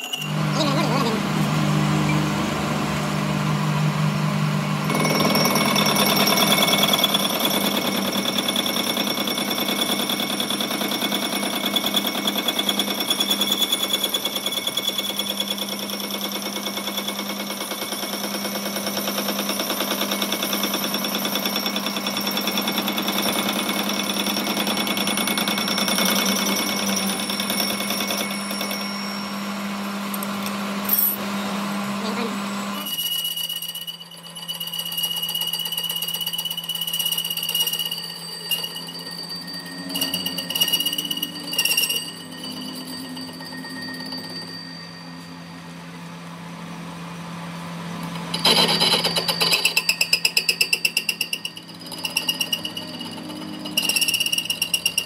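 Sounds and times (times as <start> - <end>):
high ringing tones: 0.0 - 1.2, 4.8 - 31.3, 32.6 - 55.0
machine low hum: 0.1 - 13.6, 25.5 - 32.9, 34.9 - 55.0
lathe tool rattling on metal: 4.9 - 29.0, 32.8 - 44.6, 48.2 - 55.0.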